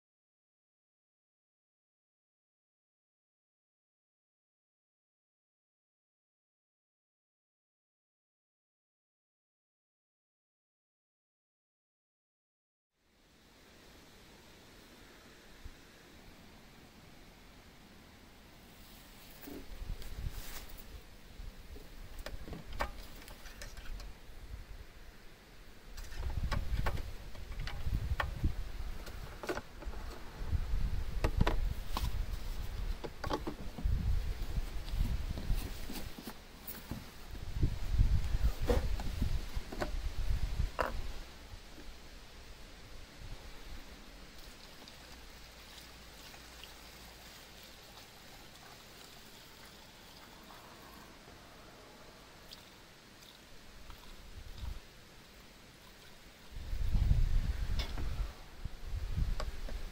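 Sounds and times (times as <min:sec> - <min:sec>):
liquid trickling through funnel: 0:44.4 - 0:51.1.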